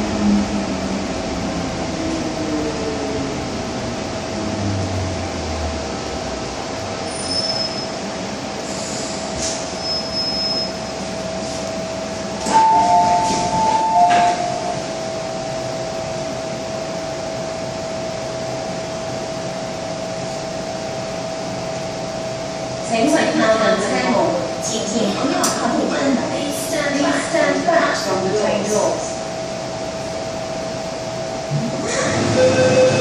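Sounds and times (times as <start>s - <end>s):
train equipment humming: 0.0s - 33.0s
train doors opening clunk: 12.4s - 14.8s.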